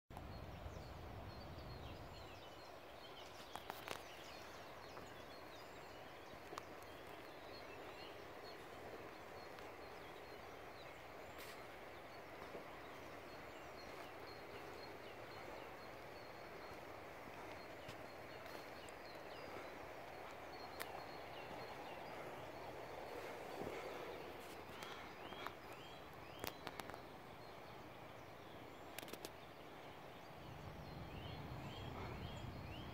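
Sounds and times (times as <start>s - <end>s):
background rush: 4.1s - 28.8s
sharp clicks: 28.9s - 29.4s.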